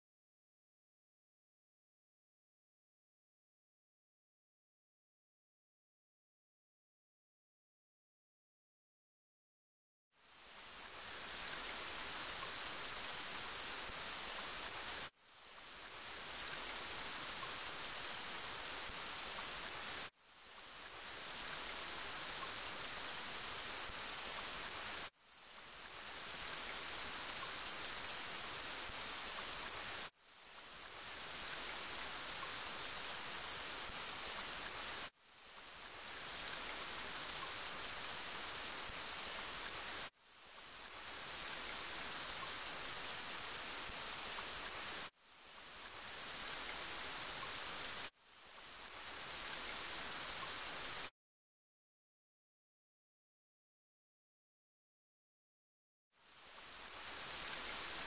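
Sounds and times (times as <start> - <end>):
steady rain hiss: 10.2 - 51.1, 56.2 - 58.0.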